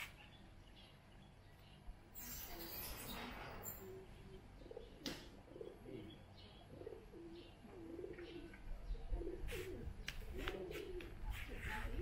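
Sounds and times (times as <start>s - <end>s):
small birds chirping: 0.0s - 12.0s
doves cooing: 3.7s - 12.0s.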